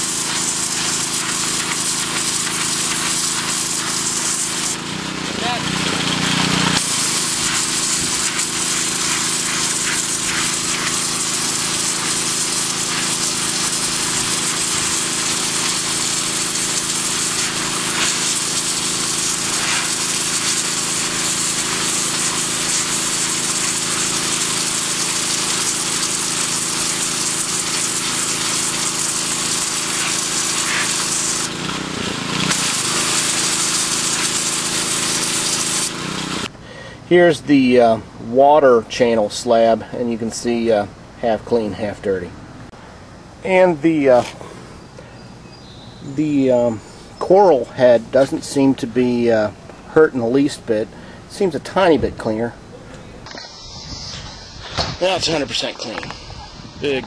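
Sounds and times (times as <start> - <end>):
machine humming: 0.0 - 36.5, 52.6 - 57.0
pressure washer jet hissing: 0.0 - 37.0, 52.6 - 57.0.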